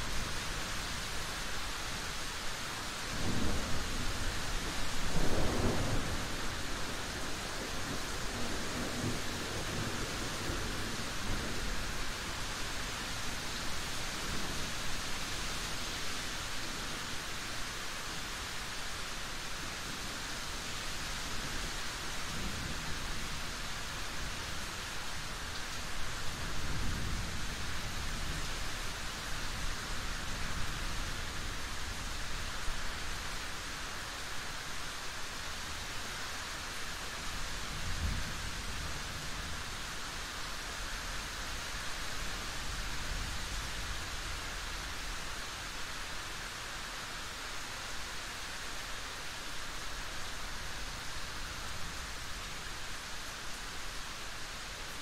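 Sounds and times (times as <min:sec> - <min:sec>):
steady rainfall: 0:00.0 - 0:55.0
low thunder rumbles: 0:03.2 - 0:11.6.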